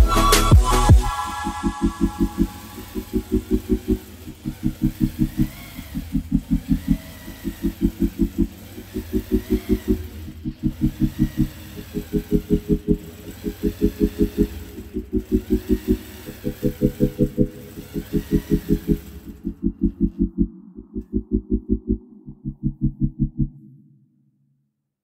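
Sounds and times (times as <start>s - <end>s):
quilting machine needle stitching: 2.0s - 20.3s.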